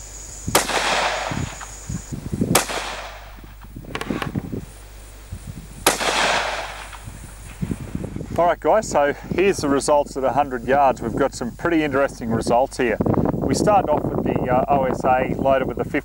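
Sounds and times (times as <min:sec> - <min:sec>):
rifle shots with echo: 0:00.5 - 0:01.8, 0:02.5 - 0:04.3, 0:05.8 - 0:07.0.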